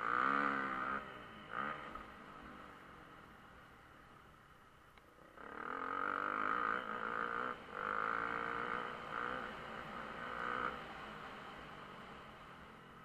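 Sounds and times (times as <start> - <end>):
muffled dirt bike engine revving: 0.0 - 2.8, 5.2 - 12.0.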